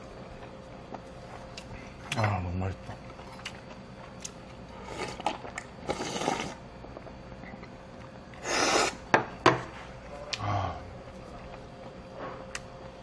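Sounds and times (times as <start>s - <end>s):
slurping broth from a bowl: 4.8s - 6.6s.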